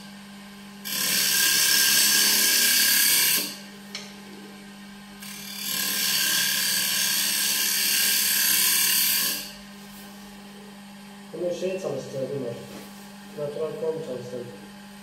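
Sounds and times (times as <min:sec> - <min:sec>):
lathe motor hum: 0:00.9 - 0:09.6.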